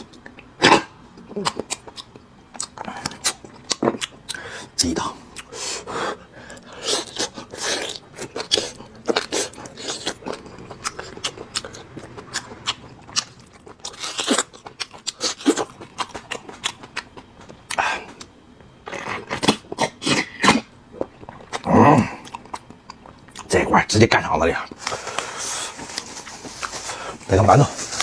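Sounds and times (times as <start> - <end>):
chewing and lip-smacking: 1.1 - 4.5, 6.5 - 23.6.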